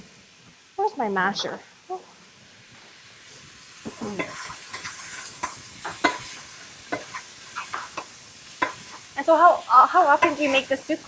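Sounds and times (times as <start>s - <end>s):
sausage sizzling in a frying pan: 0.0s - 11.0s
utensil scraping and knocking pan: 3.9s - 8.9s.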